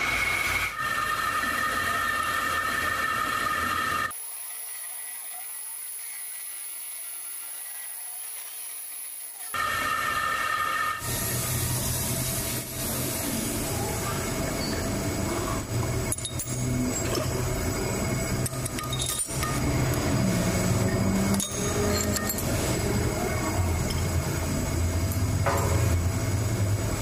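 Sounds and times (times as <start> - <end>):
machine hum: 9.6 - 27.0
metal clinks and knocks: 16.1 - 17.4, 18.4 - 19.7, 20.9 - 22.8.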